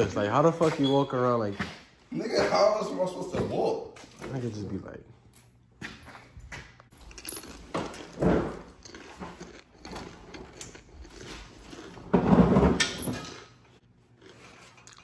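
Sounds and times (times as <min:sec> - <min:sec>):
hand tools clinking on concrete: 0:06.4 - 0:08.2.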